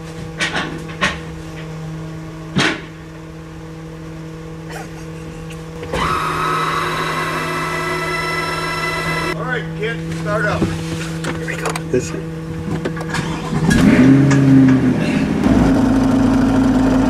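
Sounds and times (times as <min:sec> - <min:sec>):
truck machinery humming: 0:00.0 - 0:17.0
motor whining: 0:05.2 - 0:09.4.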